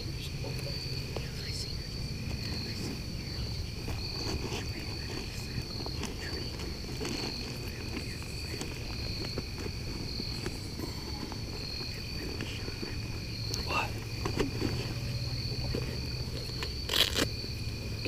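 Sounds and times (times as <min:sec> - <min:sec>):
crickets chirping: 0:00.0 - 0:18.0
fainter lower insect trill: 0:00.0 - 0:18.0.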